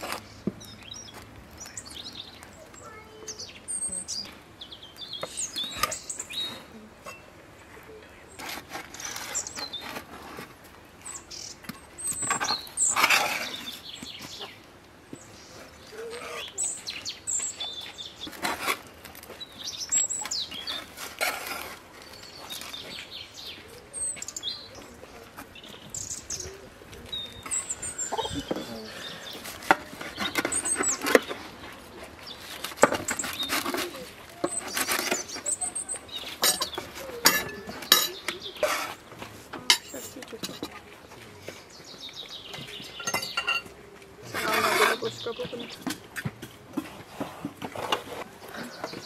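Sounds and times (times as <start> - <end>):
small birds chirping: 0.0 - 49.0
knife scraping metal baking tray: 44.3 - 45.2.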